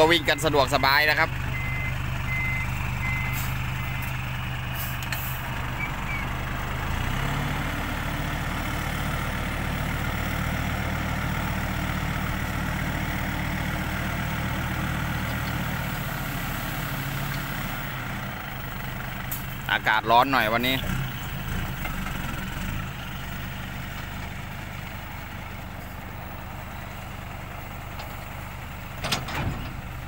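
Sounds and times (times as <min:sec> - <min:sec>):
reversing beeps: 0:00.0 - 0:04.2
diesel truck engine revving: 0:00.0 - 0:30.0.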